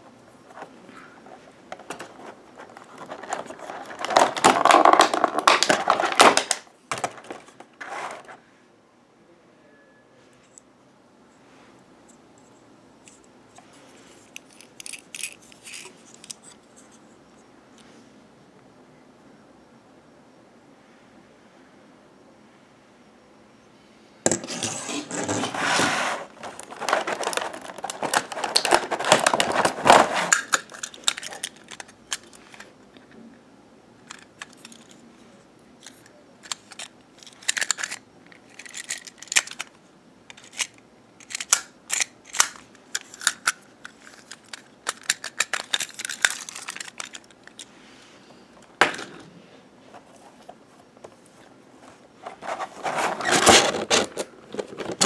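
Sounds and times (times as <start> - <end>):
packaging rustling: 0.5 - 8.4, 24.4 - 32.6, 40.4 - 47.7, 51.9 - 55.0.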